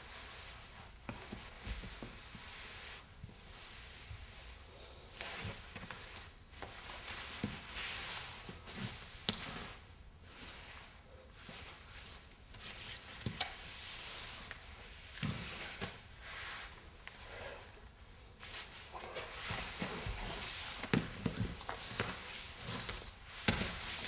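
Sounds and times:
cloth and paper rustling: 0:18.4 - 0:24.0.

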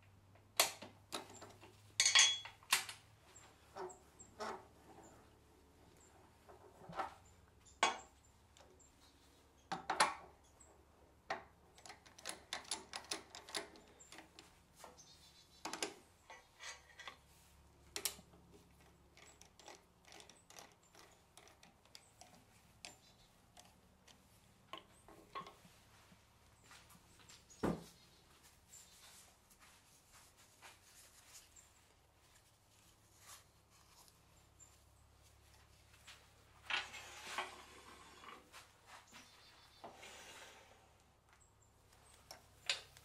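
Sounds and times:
metal chucks clinking and knocking: 0:00.6 - 0:03.0, 0:07.6 - 0:08.7.

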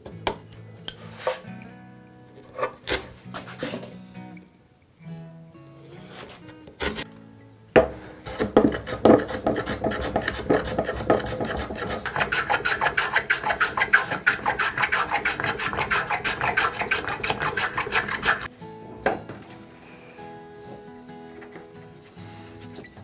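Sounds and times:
hand plane scraping wood: 0:06.1 - 0:07.0, 0:08.2 - 0:18.5.

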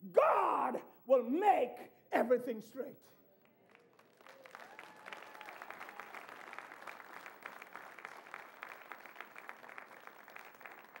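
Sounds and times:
crowd applauding: 0:03.4 - 0:11.0.

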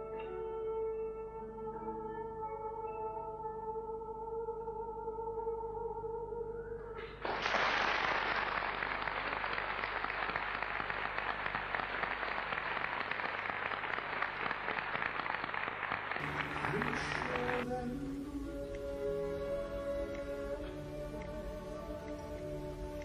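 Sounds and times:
audience applauding: 0:07.0 - 0:17.7
orchestral music: 0:16.2 - 0:23.0.

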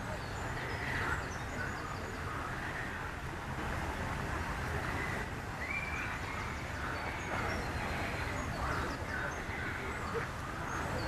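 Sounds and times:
small birds chirping: 0:04.9 - 0:11.0.

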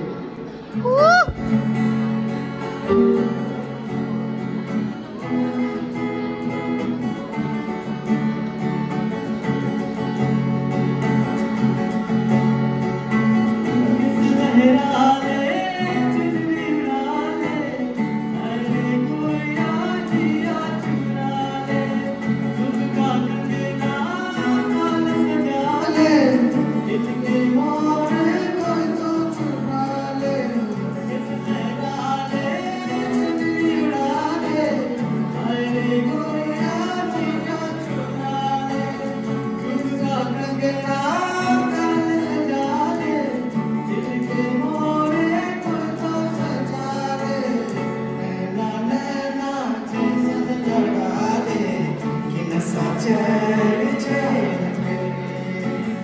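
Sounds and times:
acoustic guitar: 0:00.0 - 0:56.0
men singing into microphones: 0:14.0 - 0:56.0.

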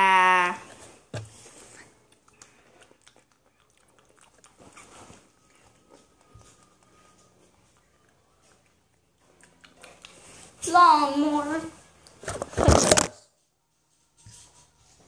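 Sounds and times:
child chewing: 0:00.6 - 0:10.6.

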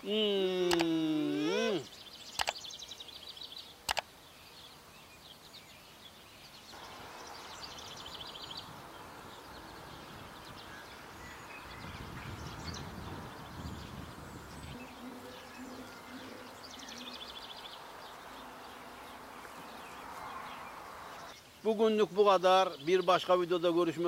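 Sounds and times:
background hiss: 0:00.0 - 0:24.0
small birds chirping: 0:00.0 - 0:24.0
sharp clicks: 0:00.6 - 0:01.0, 0:02.3 - 0:02.6, 0:03.9 - 0:04.1.

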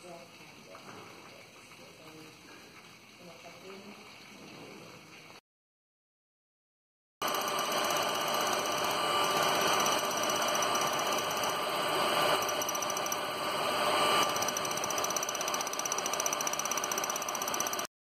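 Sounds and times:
machine humming and hissing: 0:07.2 - 0:17.9.

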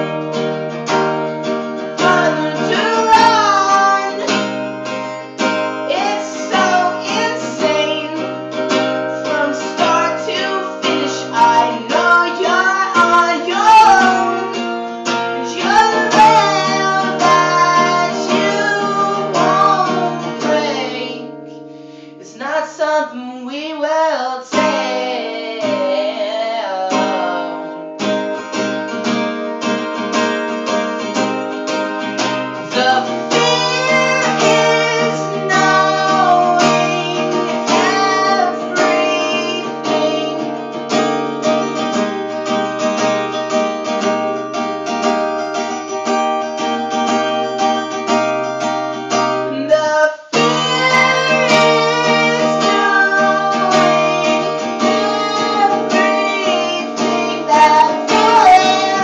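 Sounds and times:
acoustic guitar strumming: 0:00.0 - 0:22.6, 0:23.4 - 0:59.0
person singing: 0:01.2 - 0:28.6, 0:32.5 - 0:41.9, 0:45.4 - 0:59.0.

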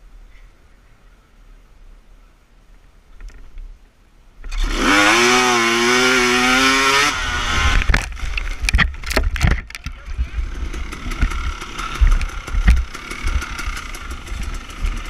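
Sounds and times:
dirt bike engine revving: 0:04.5 - 0:09.0, 0:10.1 - 0:15.0.

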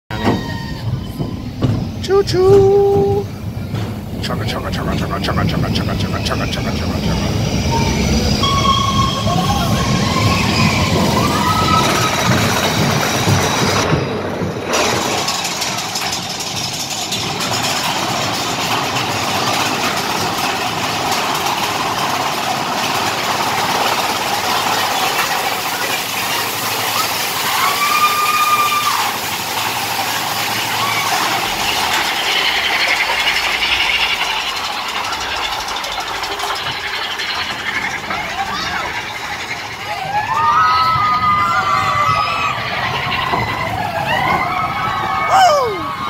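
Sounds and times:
roller coaster rumbling on track: 0:00.0 - 0:46.0
brief squeal: 0:00.1 - 0:01.6, 0:06.2 - 0:12.4.

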